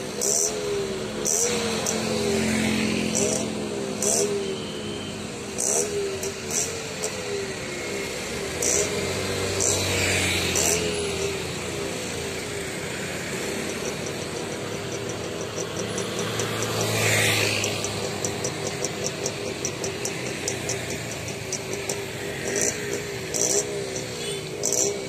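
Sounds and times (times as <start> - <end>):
road traffic engines: 0.0 - 25.0
vehicle passing close: 1.2 - 4.5, 5.6 - 25.0
rapid high ticking: 8.4 - 25.0.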